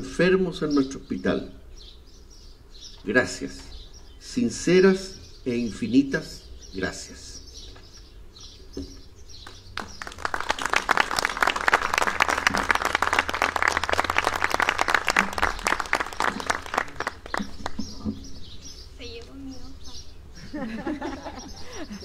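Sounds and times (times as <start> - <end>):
audience applauding: 9.5 - 17.8.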